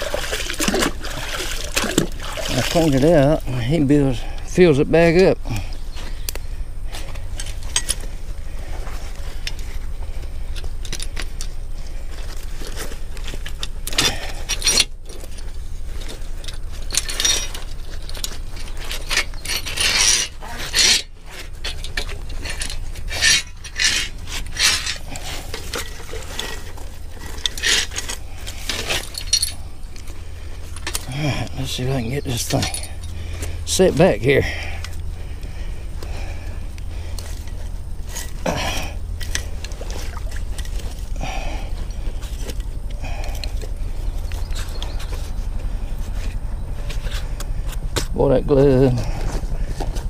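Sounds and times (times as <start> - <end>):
steady low rumble: 0.0 - 50.0
metal trap chain clinking: 7.3 - 8.0, 13.4 - 29.8, 30.7 - 35.0.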